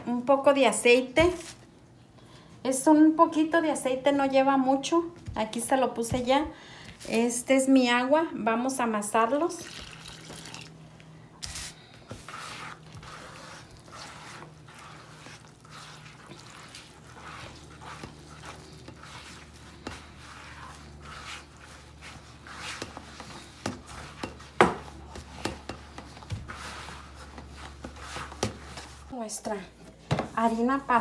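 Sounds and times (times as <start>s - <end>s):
hands kneading dough: 9.0s - 31.0s.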